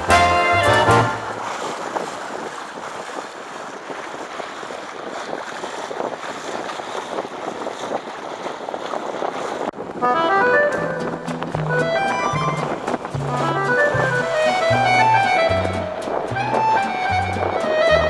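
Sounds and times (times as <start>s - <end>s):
music: 0.0s - 1.3s, 10.0s - 18.0s
bow wave splashing along hull: 0.0s - 18.0s
wind buffeting microphone: 0.0s - 18.0s.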